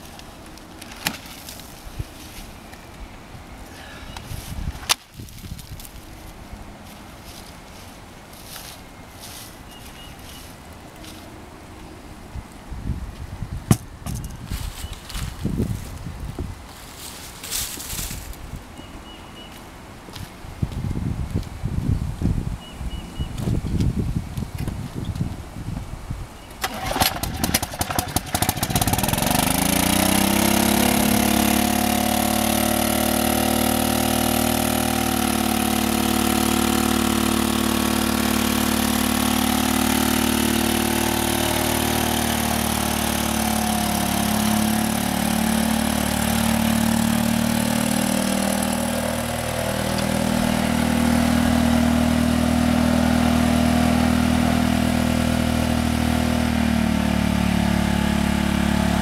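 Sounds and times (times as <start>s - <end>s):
small locomotive engine running: 26.6s - 51.8s.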